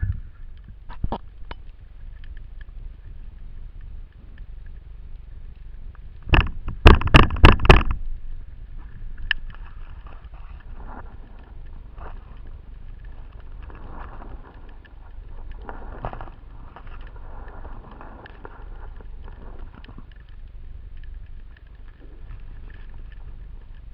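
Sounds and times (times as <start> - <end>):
faint crackle of small clicks: 0.0 - 23.9
loud underwater knocks: 6.3 - 8.0.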